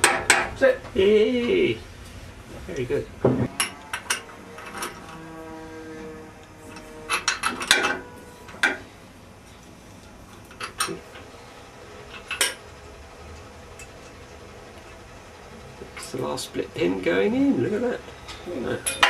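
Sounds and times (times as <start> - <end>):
metal tools clinking on steel: 6.7 - 8.8, 18.8 - 19.0.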